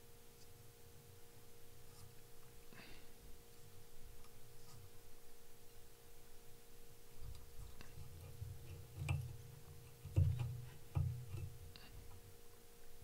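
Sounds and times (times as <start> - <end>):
faint steady hum: 0.0 - 13.0
small handling ticks and clicks: 7.2 - 12.2.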